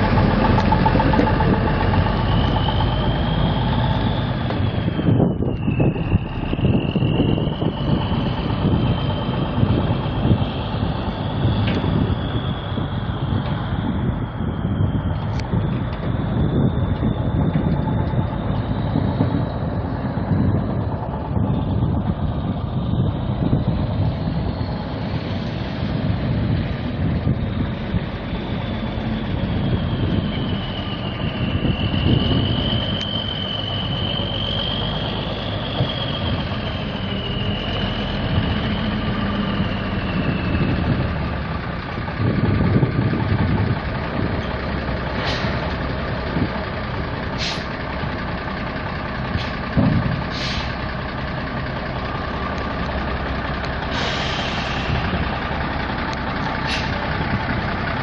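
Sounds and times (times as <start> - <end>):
wavering high whine: 0.0 - 41.6
diesel truck engine idling: 0.0 - 58.0.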